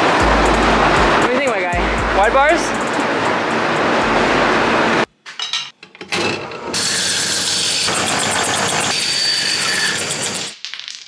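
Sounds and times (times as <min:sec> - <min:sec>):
bandsaw cutting metal tube: 0:06.7 - 0:10.5.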